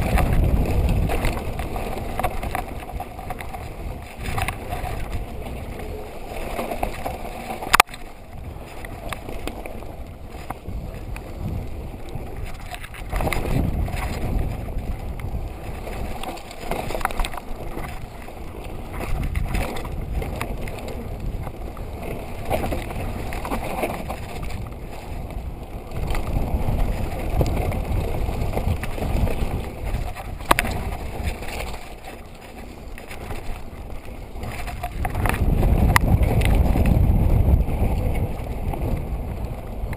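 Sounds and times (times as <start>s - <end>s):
bike rattling: 0.0s - 39.9s
bike tyres on loose dirt: 0.0s - 39.9s
wind on microphone: 0.0s - 39.9s.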